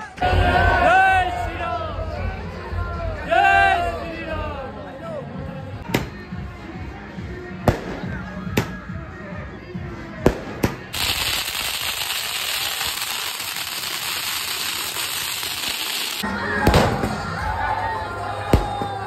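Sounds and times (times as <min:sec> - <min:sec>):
music: 0:00.0 - 0:19.0
firework fountain hissing: 0:10.9 - 0:16.2.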